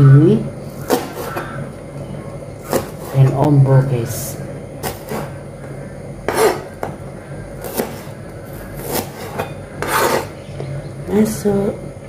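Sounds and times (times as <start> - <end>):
knife chopping on cutting board: 0.8 - 1.4, 2.6 - 3.1, 6.3 - 7.0, 7.6 - 8.1, 8.8 - 10.3.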